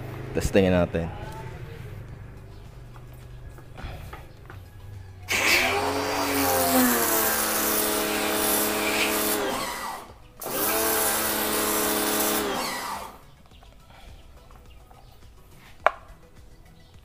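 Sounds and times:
pressure washer motor humming: 5.3s - 13.2s.

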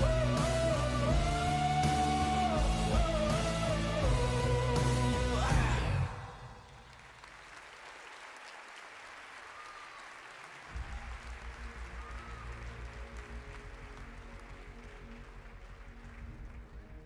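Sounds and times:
rock backing track: 0.0s - 6.0s
audience applauding: 6.3s - 17.0s.

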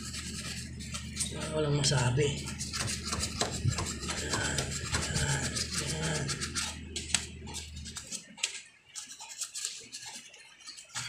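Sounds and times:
brush scrubbing metal: 0.0s - 11.0s
low steady hum: 0.0s - 11.0s.

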